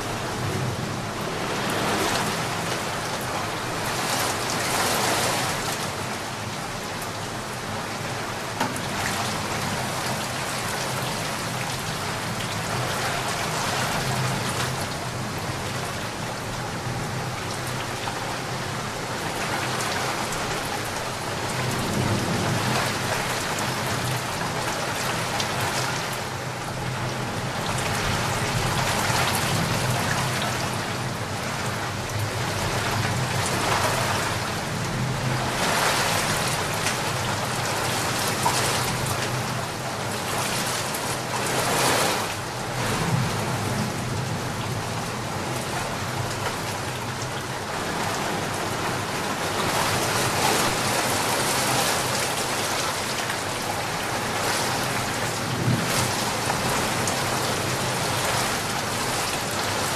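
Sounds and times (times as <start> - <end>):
heavy rain: 0.0 - 59.9
running floodwater: 0.0 - 59.9.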